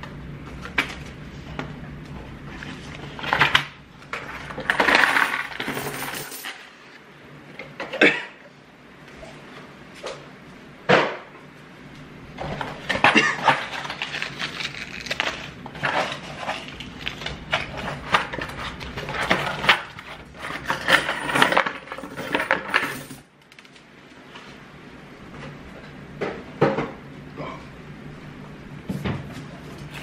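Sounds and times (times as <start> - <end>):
coins clattering and clinking: 4.2 - 6.8, 17.5 - 23.3.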